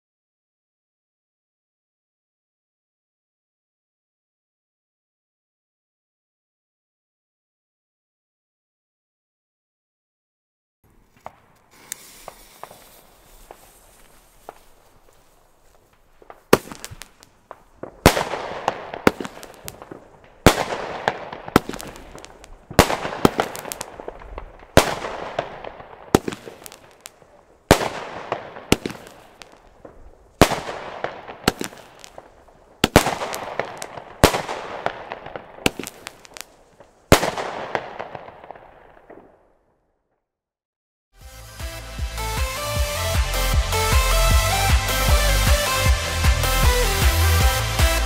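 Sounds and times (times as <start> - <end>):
firework bangs and crackle: 10.9 - 39.6, 41.3 - 48.0.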